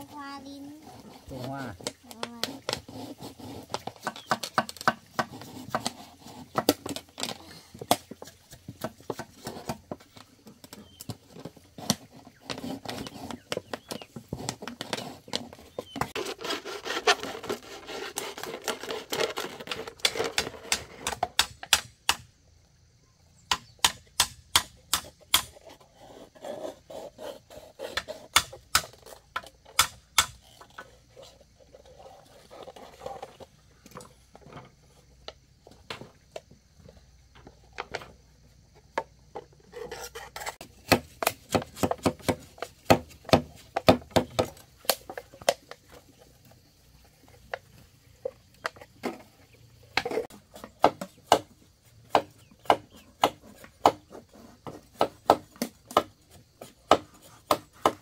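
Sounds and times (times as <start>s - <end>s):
knife rasping scrape: 16.1s - 19.2s.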